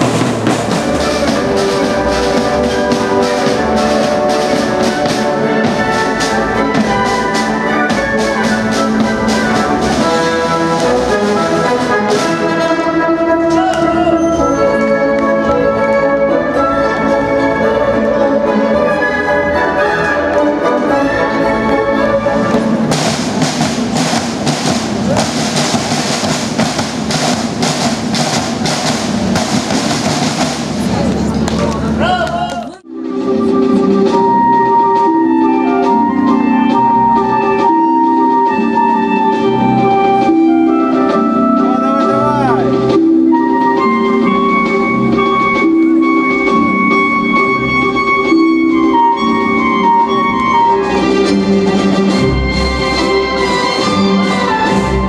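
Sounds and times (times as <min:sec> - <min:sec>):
marching snare drums: 0:00.0 - 0:14.0, 0:22.3 - 0:32.0
brass-led orchestral music: 0:00.0 - 0:32.1, 0:32.8 - 0:55.0.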